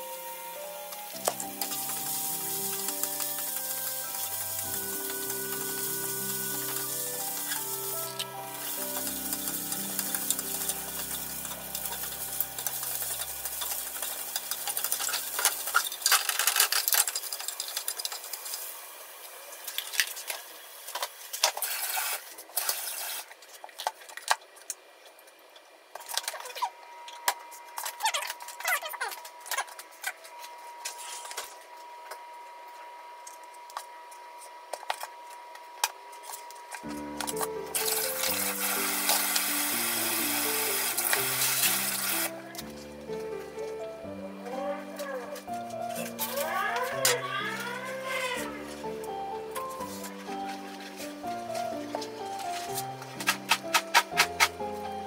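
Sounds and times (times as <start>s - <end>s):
background music: 0.0s - 15.7s, 36.8s - 55.0s
carrots sizzling in a frying pan: 1.1s - 23.2s, 37.8s - 42.4s.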